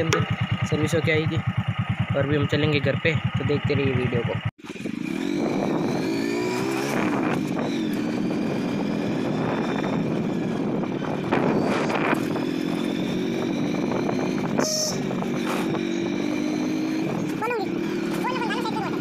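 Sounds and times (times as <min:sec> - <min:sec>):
motorcycle engine running: 0:00.0 - 0:19.0
wind noise on microphone: 0:04.8 - 0:17.4
short high beep: 0:14.6 - 0:15.2.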